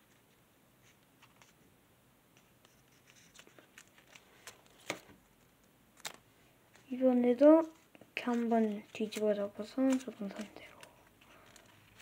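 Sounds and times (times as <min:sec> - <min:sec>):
paper crinkling: 0:02.6 - 0:12.0.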